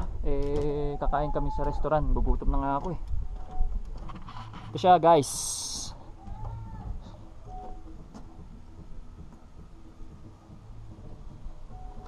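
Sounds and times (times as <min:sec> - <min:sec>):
wind rumble on microphone: 0:00.0 - 0:04.8.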